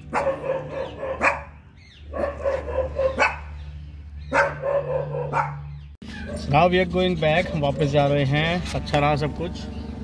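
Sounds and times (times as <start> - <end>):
dog barking: 0.0 - 3.6, 4.3 - 6.6.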